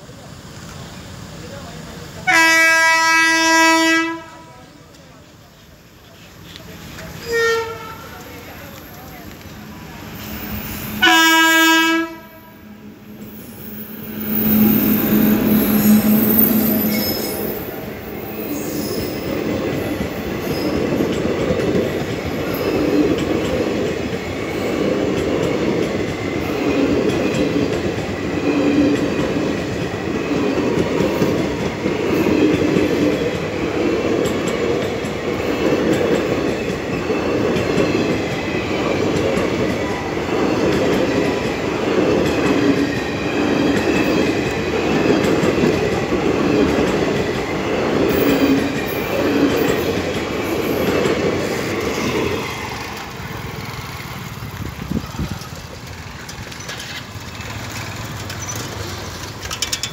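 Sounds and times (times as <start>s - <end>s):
train rumbling past: 0.0s - 59.9s
train horn blast: 2.2s - 4.5s, 7.2s - 8.2s, 10.8s - 13.0s, 14.1s - 17.4s
wheel clatter over rail joints: 34.2s - 59.9s.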